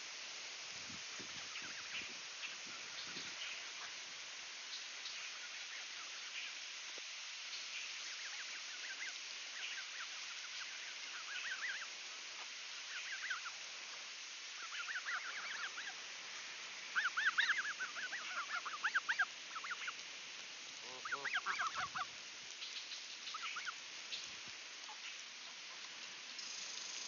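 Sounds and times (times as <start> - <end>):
goslings peeping: 1.3 - 4.0, 7.7 - 13.6, 14.5 - 16.1, 16.8 - 20.0, 20.8 - 25.9.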